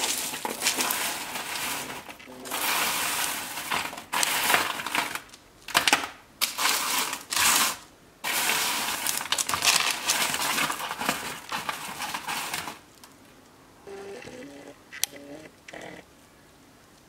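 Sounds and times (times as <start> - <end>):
granola rustling on metal tray: 0.0 - 13.1.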